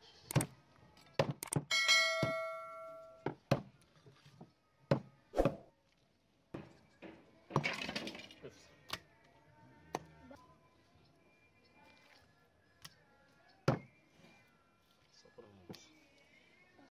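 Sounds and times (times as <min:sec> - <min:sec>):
metal pot ringing: 0:01.7 - 0:03.2
utensils knocking on cookware: 0:01.7 - 0:03.2.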